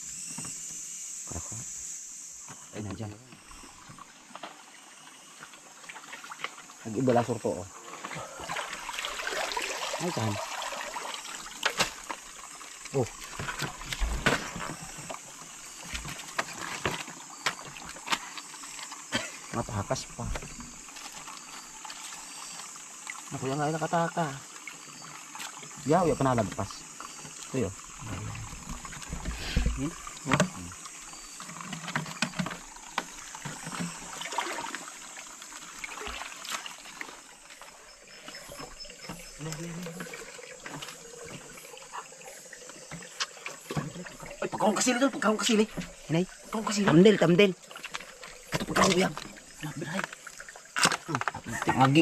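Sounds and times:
stream trickling: 0.0s - 52.0s
small splashes and knocks: 5.3s - 23.4s, 24.5s - 52.0s.

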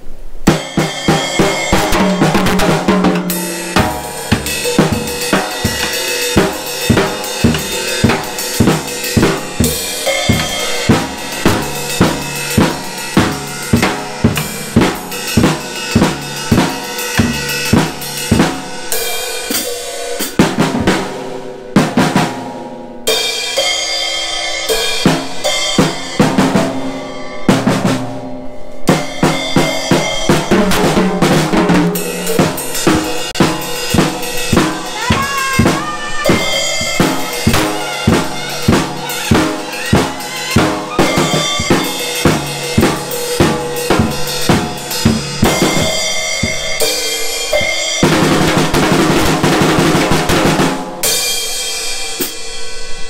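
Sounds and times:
cymbals: 0.4s - 53.0s
snare drum: 0.5s - 18.7s, 19.5s - 22.4s, 28.9s - 50.9s
bass drum: 1.1s - 18.7s, 29.4s - 47.0s.

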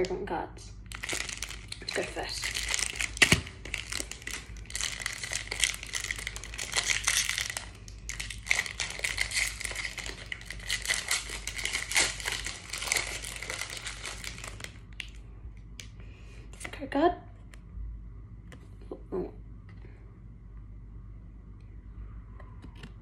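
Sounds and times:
foil wrapper crinkling: 0.8s - 15.2s.

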